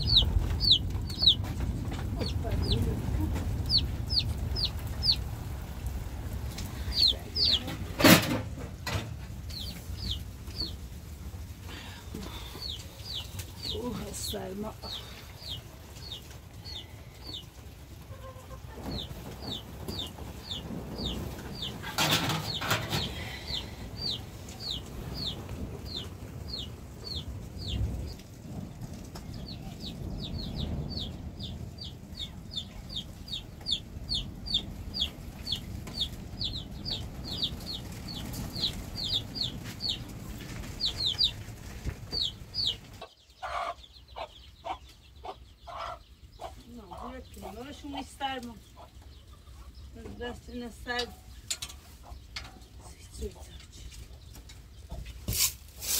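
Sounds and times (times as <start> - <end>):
low rumble: 0.0 - 43.0
chicks peeping: 0.0 - 55.9.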